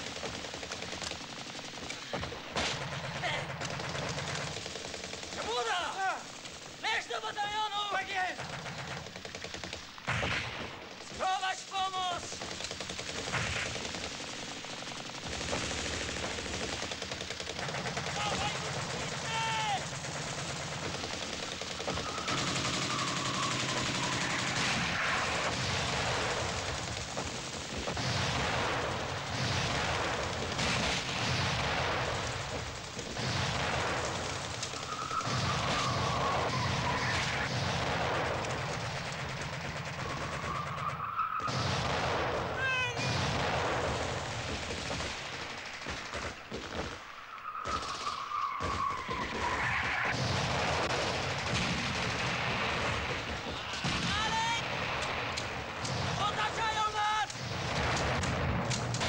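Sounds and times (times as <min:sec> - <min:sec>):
rifle and machine-gun fire: 0:00.0 - 0:59.0
shell explosions: 0:00.0 - 0:59.0
whistles of incoming shells: 0:21.7 - 0:24.6, 0:34.7 - 0:37.5, 0:40.0 - 0:41.5, 0:47.0 - 0:50.1.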